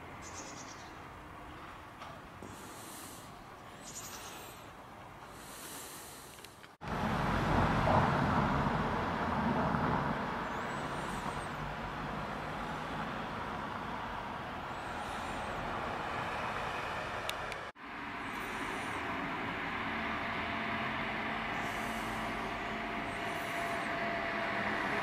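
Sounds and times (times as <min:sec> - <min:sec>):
traffic hum: 0:00.0 - 0:25.0
vehicle passing: 0:06.8 - 0:25.0.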